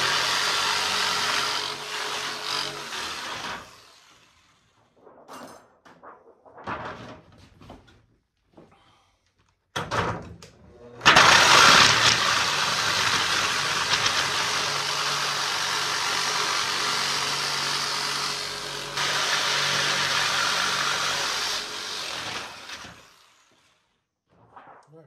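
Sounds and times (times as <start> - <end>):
jigsaw cutting sheet metal: 0.0 - 4.7, 11.0 - 23.8.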